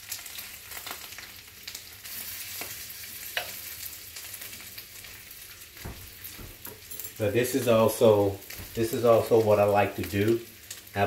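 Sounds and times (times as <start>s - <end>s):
bacon sizzling in a skillet: 0.0s - 11.0s
fat popping and crackling: 5.1s - 9.4s.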